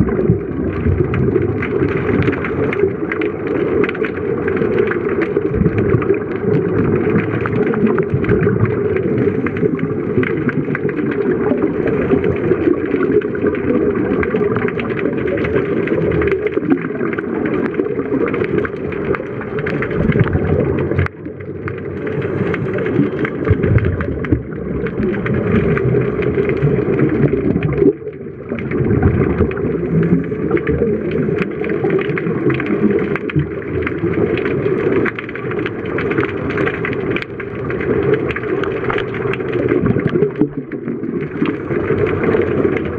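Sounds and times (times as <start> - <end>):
crackle of regulator bubbles: 0.0 - 42.9
muffled underwater rumble: 0.0 - 42.9.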